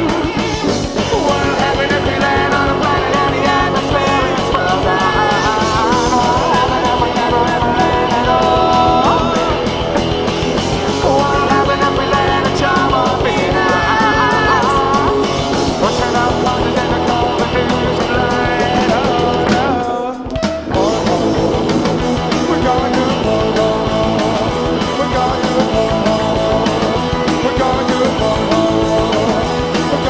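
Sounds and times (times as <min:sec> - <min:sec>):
drums keeping a steady beat: 0:00.0 - 0:30.0
electric guitar lead: 0:00.0 - 0:30.0.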